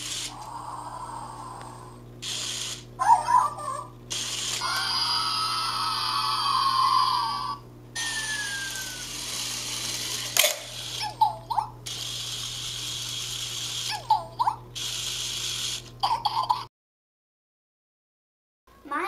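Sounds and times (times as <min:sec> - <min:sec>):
toy electric motor whirring: 0:00.0 - 0:16.0
squeaky toy chirps: 0:08.0 - 0:09.2.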